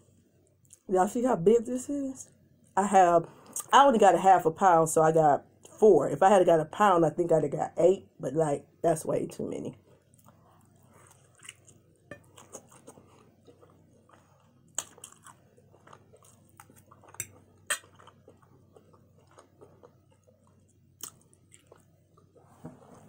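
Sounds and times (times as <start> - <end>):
wet chewing and biting: 10.0 - 22.4.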